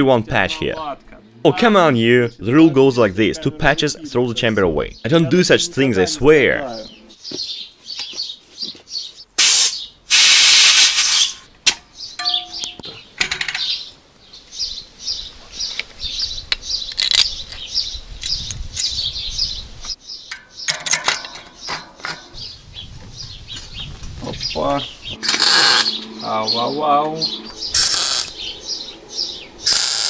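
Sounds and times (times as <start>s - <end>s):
small birds chirping: 0.4s - 10.0s, 11.9s - 30.0s
loud hiss: 9.4s - 11.5s, 27.7s - 28.4s, 29.6s - 30.0s
bicycle parts clicking and knocking: 11.7s - 13.8s, 16.5s - 17.6s, 20.3s - 22.3s.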